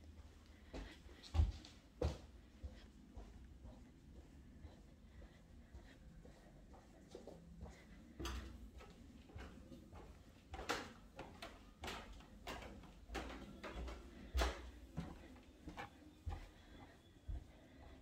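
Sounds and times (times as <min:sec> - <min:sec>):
footsteps on wooden stairs: 0:00.7 - 0:04.3, 0:06.2 - 0:18.0.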